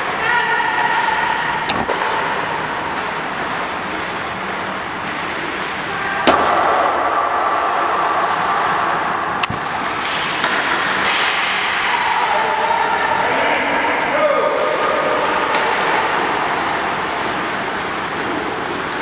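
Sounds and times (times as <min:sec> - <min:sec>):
hockey stick hitting puck: 0:01.6 - 0:04.2, 0:05.5 - 0:08.4, 0:09.4 - 0:12.2, 0:14.8 - 0:19.0
ice rink hiss: 0:02.1 - 0:06.2.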